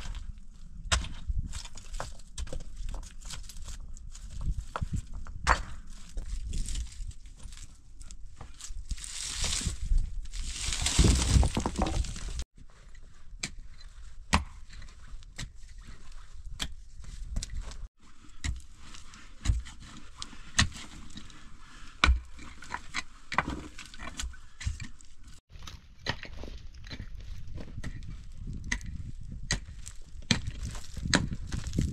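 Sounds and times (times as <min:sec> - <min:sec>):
scraping and crunching gravel: 0:00.0 - 0:12.5, 0:17.1 - 0:31.9
stones knocking: 0:10.4 - 0:12.5.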